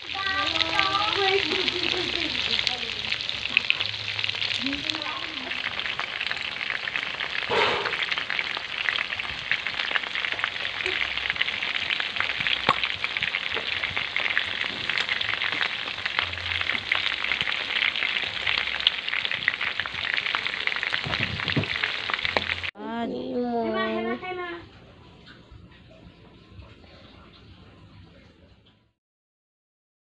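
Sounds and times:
chicken sizzling in oil: 0.0s - 22.8s.

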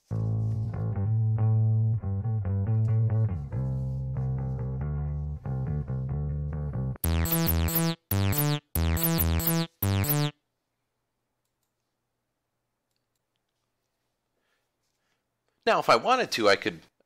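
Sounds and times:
bass guitar riff: 0.2s - 10.3s
synthesizer riff with falling sweeps: 7.0s - 10.4s.

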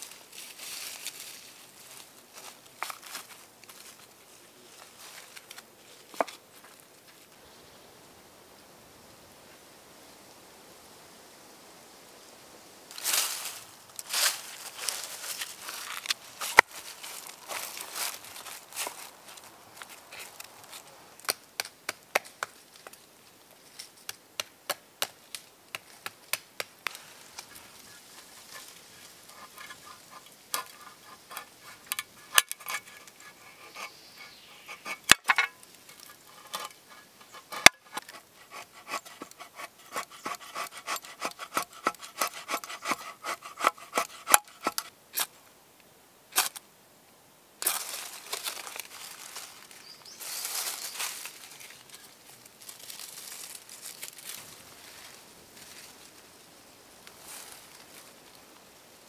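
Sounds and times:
knife scraping on flint: 28.1s - 45.3s.

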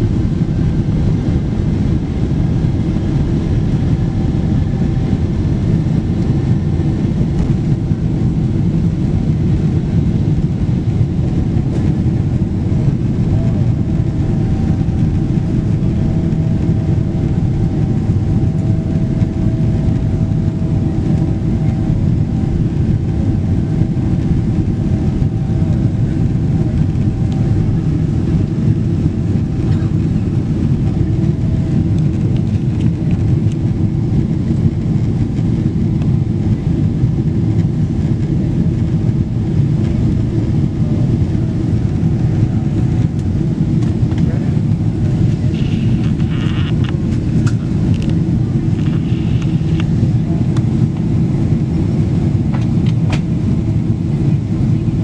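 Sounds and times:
jet engines low roar in cabin: 0.0s - 55.0s
faint high whine: 45.4s - 46.9s.

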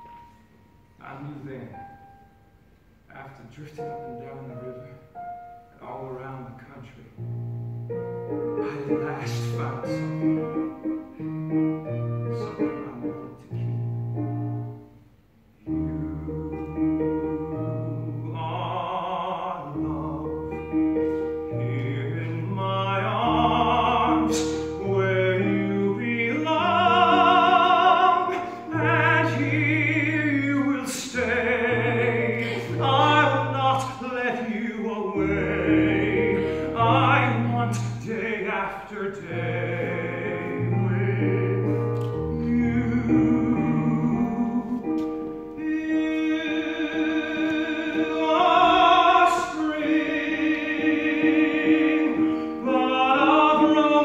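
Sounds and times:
piano accompaniment: 0.0s - 54.0s
person singing ballad: 17.8s - 54.0s.

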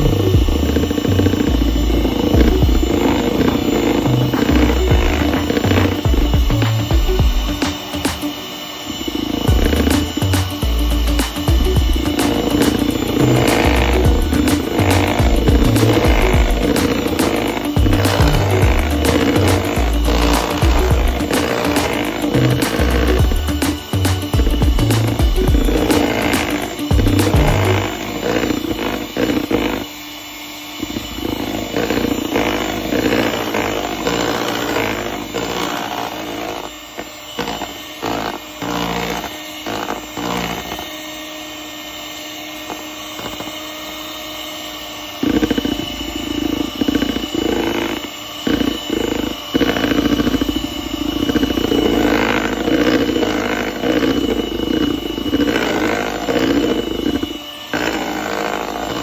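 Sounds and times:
beaters knocking bowl: 0.0s - 8.5s, 9.2s - 29.8s
electric hand mixer whisking batter: 0.0s - 59.0s.

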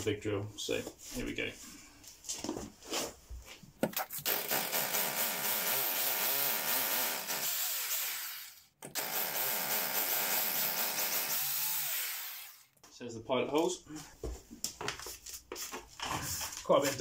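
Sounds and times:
hammer drill boring into concrete: 4.0s - 12.7s.

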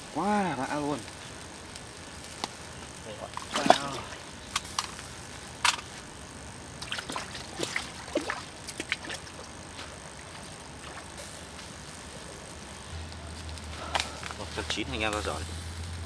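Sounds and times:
water trickling and sloshing: 3.4s - 4.2s, 6.8s - 9.3s.

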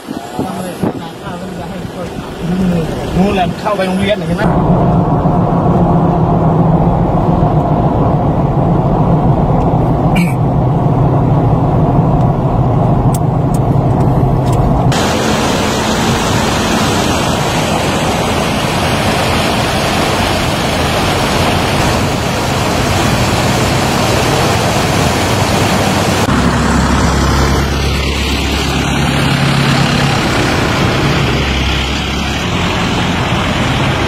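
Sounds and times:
floodwater rushing over road: 0.0s - 5.4s, 14.9s - 34.0s
vehicle engine and road noise: 0.0s - 34.0s
deep engine idling: 1.1s - 34.0s.

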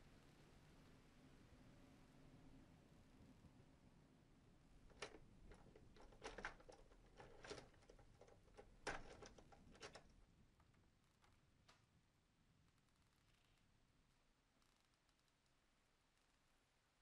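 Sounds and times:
metallic clicks at door lock: 4.9s - 10.1s.

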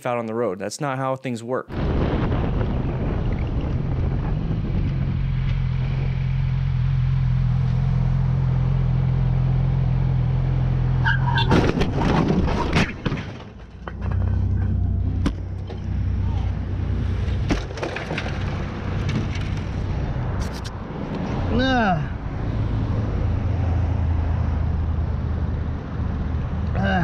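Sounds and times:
motorcycle engine drone: 1.8s - 11.5s, 13.9s - 27.0s
loud clattering crash: 11.4s - 15.9s, 17.0s - 19.8s.

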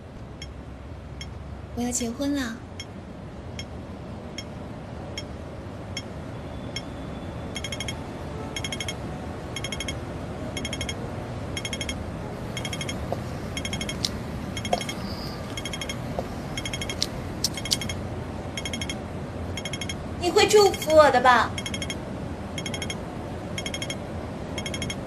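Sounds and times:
steady low noise: 7.6s - 25.0s
regular light clicking: 13.1s - 18.0s.

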